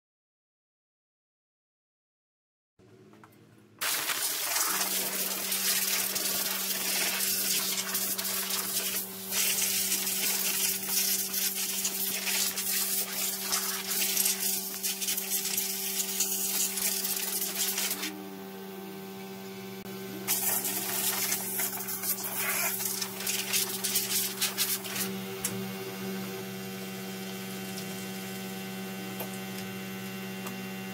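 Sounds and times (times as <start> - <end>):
air blow gun hissing: 3.8 - 18.1, 20.3 - 25.1
steady low hum: 5.4 - 30.9.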